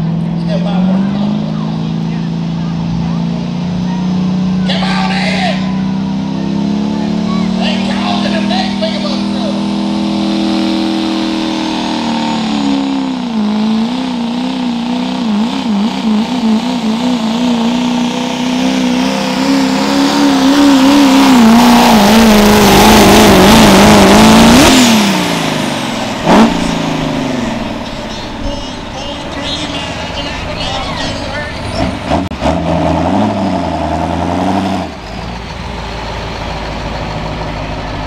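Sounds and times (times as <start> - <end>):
truck engine at full throttle: 0.0 - 38.0
loud engine pop: 20.4 - 29.6.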